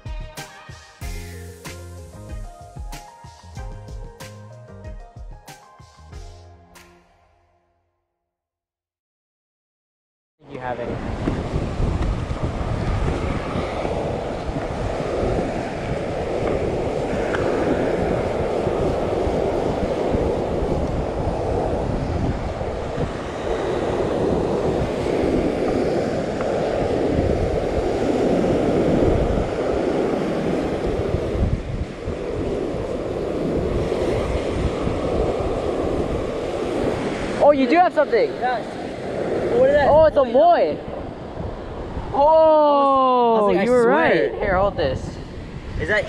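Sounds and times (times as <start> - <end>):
surf breaking on sandy shore: 10.5 - 46.0
wind buffeting microphone: 10.6 - 46.0.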